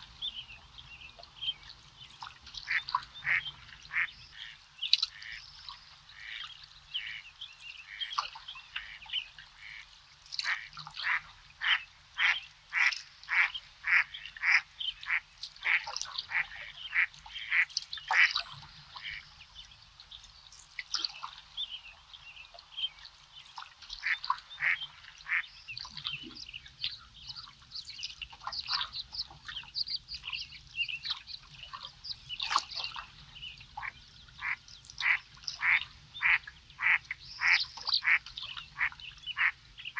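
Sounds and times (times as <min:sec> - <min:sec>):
high bird calls: 0:24.0 - 0:39.9.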